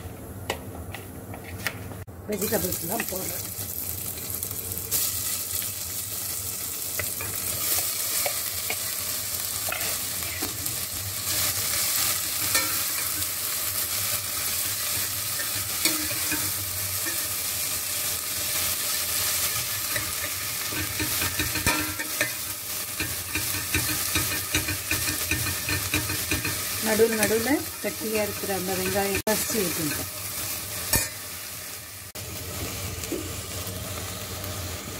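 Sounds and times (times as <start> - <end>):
vegetables sizzling in hot oil: 2.3 - 34.9.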